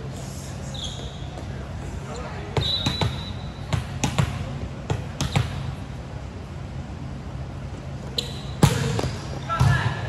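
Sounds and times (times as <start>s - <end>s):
volleyball bouncing on gym floor: 2.6s - 5.7s, 8.6s - 10.0s.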